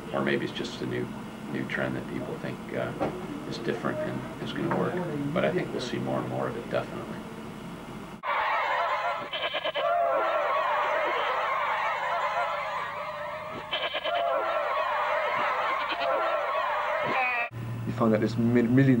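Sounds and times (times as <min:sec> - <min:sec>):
high wavering honking cries: 0:08.2 - 0:17.5.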